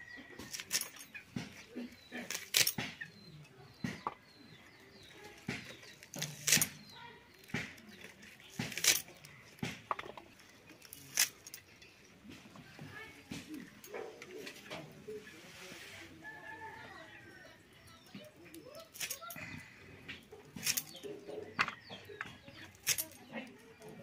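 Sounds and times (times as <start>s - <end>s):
blade slicing vegetable stalks: 1.4s - 3.0s, 5.4s - 9.9s.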